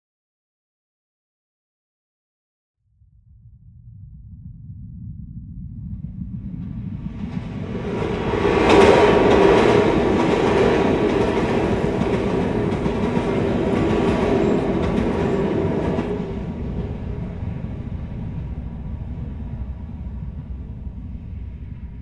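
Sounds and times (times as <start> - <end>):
passenger train rumbling: 6.0 - 22.0.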